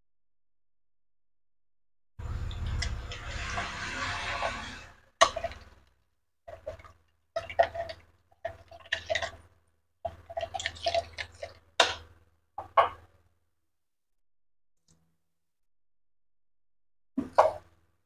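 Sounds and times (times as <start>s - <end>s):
broth bubbling and popping: 6.5s - 12.0s.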